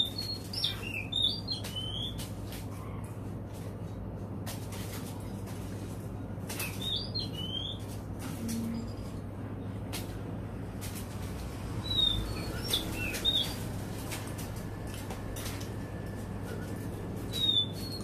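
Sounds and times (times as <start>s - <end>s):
bird chirps and whistles: 0.0s - 2.2s, 6.6s - 7.8s, 11.8s - 13.6s, 17.3s - 18.0s
steady low hum: 0.0s - 18.0s.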